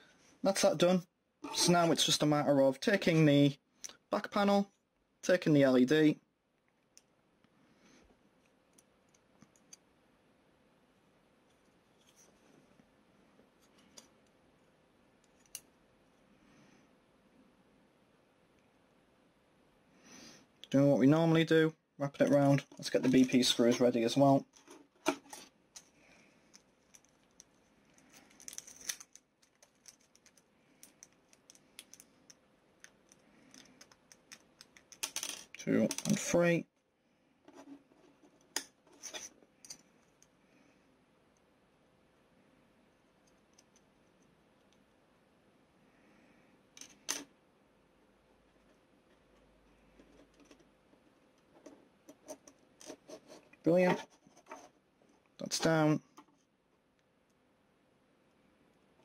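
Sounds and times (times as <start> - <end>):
small plastic parts clicking: 26.5 - 36.3.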